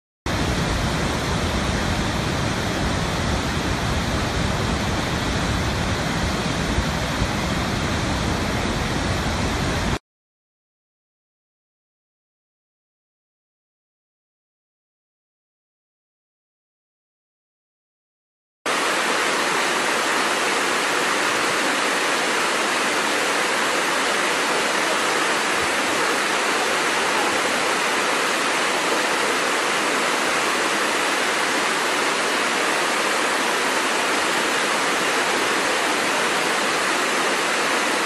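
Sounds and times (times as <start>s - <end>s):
waterfall rushing: 0.3s - 10.0s, 18.7s - 38.0s.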